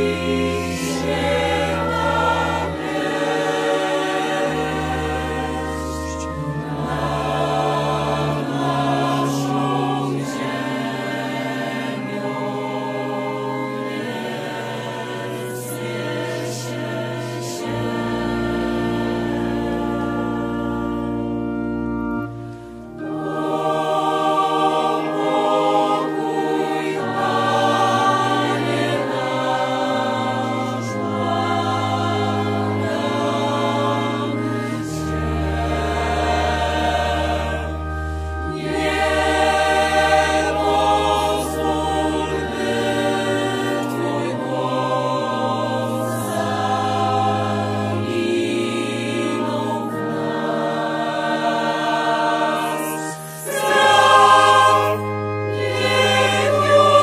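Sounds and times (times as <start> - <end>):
deep bass notes: 0.0 - 10.0, 30.5 - 48.8
mixed choir singing: 0.0 - 57.0.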